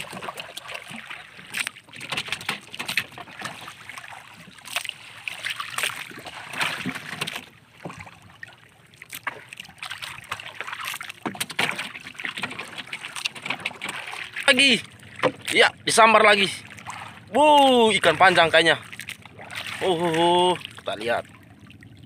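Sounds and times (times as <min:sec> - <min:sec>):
small knocks on hull: 0:00.0 - 0:03.7, 0:05.8 - 0:08.2, 0:11.1 - 0:14.4, 0:15.1 - 0:15.6
water lapping against canoe hull: 0:00.0 - 0:22.0.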